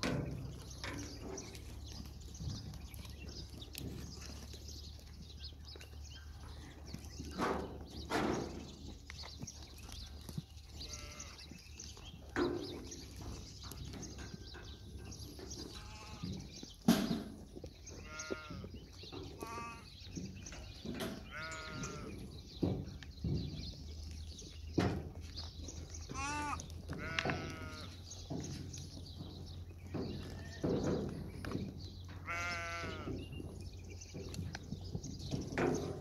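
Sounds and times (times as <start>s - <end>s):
goats bleating: 10.7s - 11.6s, 15.6s - 16.6s, 17.9s - 20.0s, 21.2s - 22.2s, 26.0s - 28.0s, 32.2s - 33.2s.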